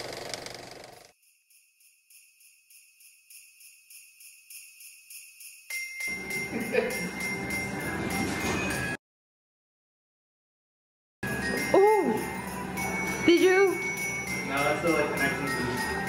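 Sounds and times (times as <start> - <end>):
sleigh bells shaken: 1.1 - 8.9, 11.2 - 16.0
background music: 6.0 - 9.0, 11.2 - 16.0.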